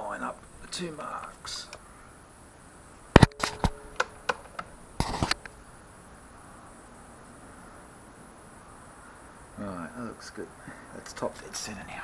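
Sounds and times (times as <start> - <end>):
faint steady hiss: 0.0 - 12.0
sharp metallic clicks: 3.2 - 5.6
brief scraping rustle: 5.0 - 5.5.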